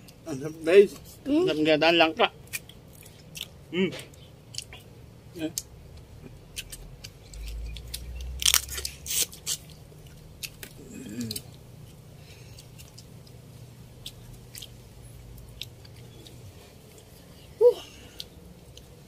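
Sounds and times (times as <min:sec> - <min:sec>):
crunching and chewing: 0:02.4 - 0:19.0
crab shell cracking: 0:02.5 - 0:03.6, 0:06.5 - 0:13.4.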